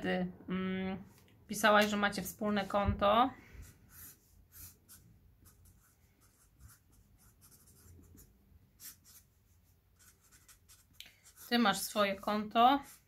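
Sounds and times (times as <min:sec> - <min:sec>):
pen scratching on paper: 0:03.6 - 0:13.0.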